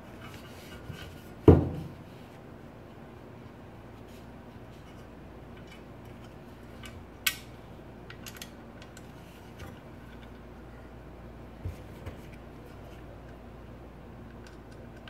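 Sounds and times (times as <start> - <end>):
metal parts clicking and tapping: 8.1 - 9.1.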